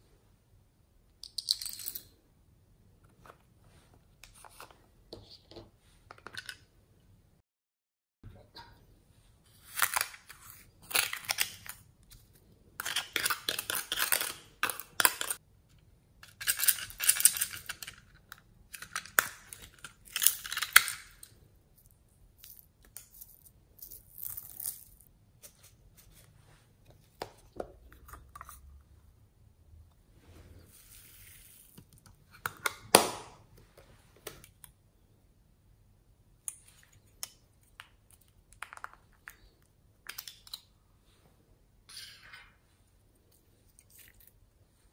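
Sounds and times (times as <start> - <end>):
spoon scraping powder in scoop: 30.6 - 31.8.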